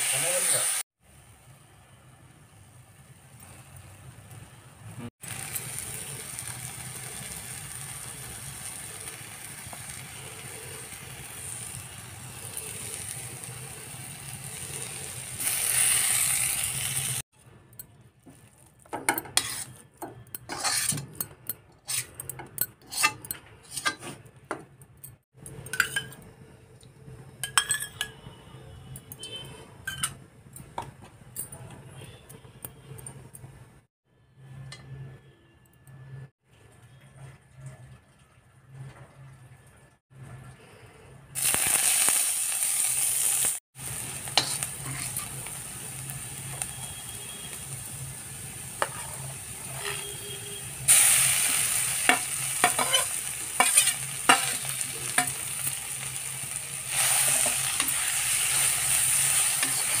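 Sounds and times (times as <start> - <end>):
onion masala sizzling in pan: 0.0 - 24.3, 41.4 - 60.0
metal spatula scraping pan: 19.0 - 24.3, 44.3 - 45.5, 48.8 - 56.1, 56.9 - 60.0
spatula clinking against pan: 52.1 - 55.4.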